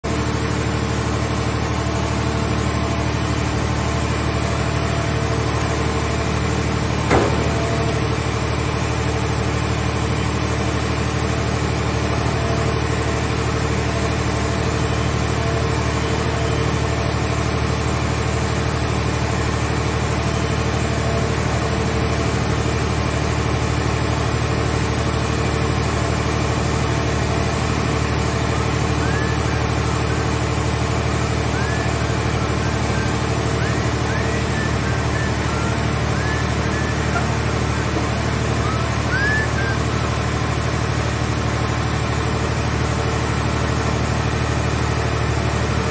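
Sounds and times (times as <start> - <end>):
hydraulic machinery droning: 0.1 - 45.9
sharp metal knock: 7.1 - 7.9.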